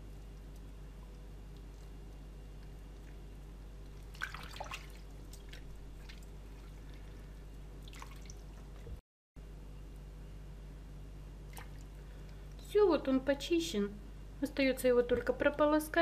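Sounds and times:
low electrical hum: 0.0 - 16.0
water splashing in a bowl: 2.8 - 8.9, 11.5 - 12.0.

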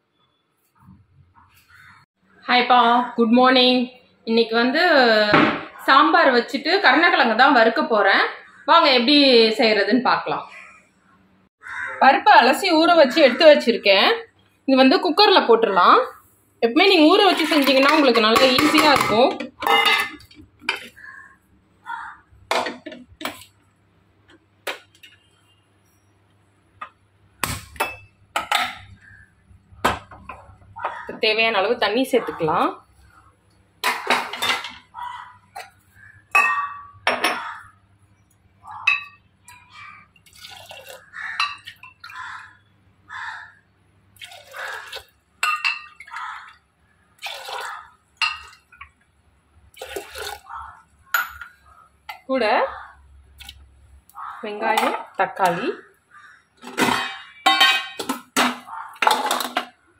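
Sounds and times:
steel kitchenware knocking and clinking: 17.2 - 20.9, 22.5 - 23.4, 27.7 - 29.0, 33.8 - 34.9, 36.3 - 37.5, 56.6 - 59.8
metal vessel clink: 17.6 - 20.3, 36.4 - 37.4, 56.8 - 58.6
water splashing into a pot: 40.2 - 42.2, 44.2 - 46.5, 47.2 - 48.9, 49.7 - 50.5.

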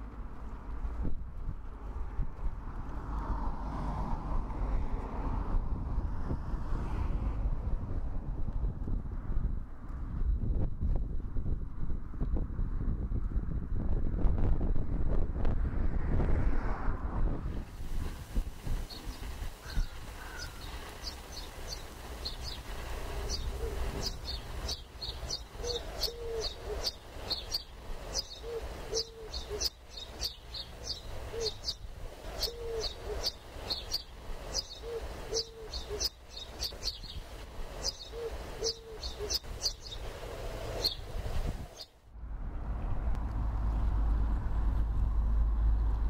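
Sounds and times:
low cooing bird call: 18.9 - 37.2, 37.8 - 41.9
rapid high bird chirps: 18.9 - 40.1, 40.7 - 41.1
low rumble: 42.0 - 46.0.

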